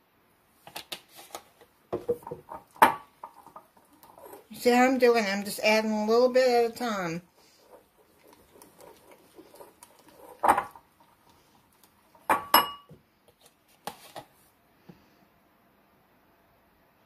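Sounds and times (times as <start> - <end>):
whisk scraping icing in bowl: 2.5 - 12.3
whisk knocking in bowl: 6.8 - 11.2
bowl ringing clinks: 12.3 - 12.9.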